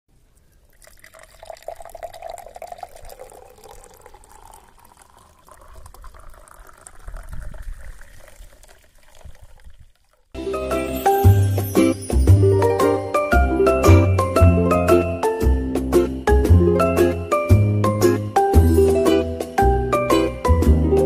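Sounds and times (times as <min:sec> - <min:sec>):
drink pouring into a glass: 0:00.4 - 0:10.2
music: 0:10.4 - 0:21.0.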